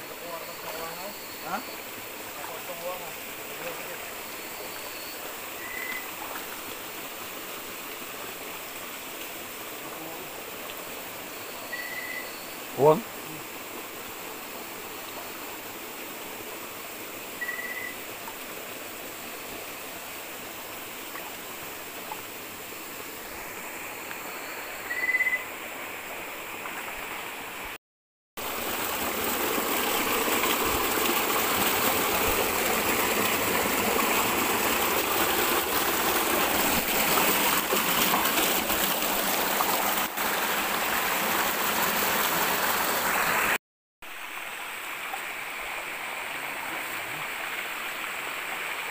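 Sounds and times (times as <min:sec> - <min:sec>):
stream water running: 0:00.0 - 0:27.8, 0:28.4 - 0:48.9
short high chirps: 0:11.6 - 0:12.5, 0:17.4 - 0:18.0, 0:24.9 - 0:25.5.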